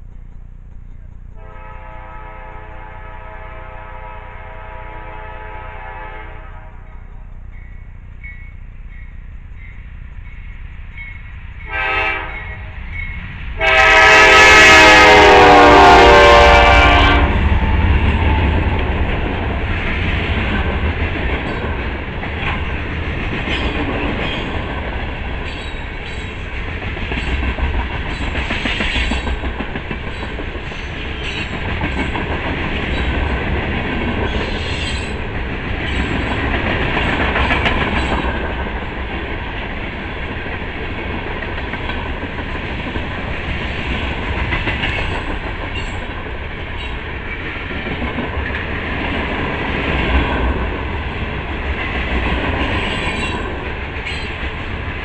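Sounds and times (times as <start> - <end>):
locomotive horn blasts: 1.4 - 7.3, 11.6 - 12.8, 13.6 - 17.7
freight train wheels clattering: 6.8 - 55.0.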